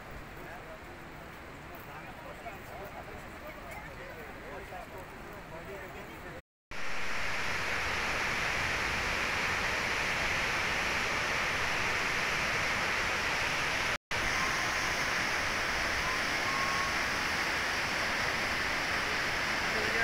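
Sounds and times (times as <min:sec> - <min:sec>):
stream rushing in flood: 0:06.7 - 0:20.0.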